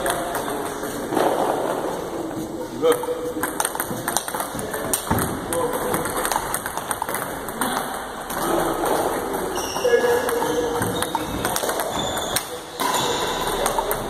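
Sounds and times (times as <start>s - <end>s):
voices in a hall: 0.0s - 14.0s
table tennis balls clicking: 2.9s - 14.0s.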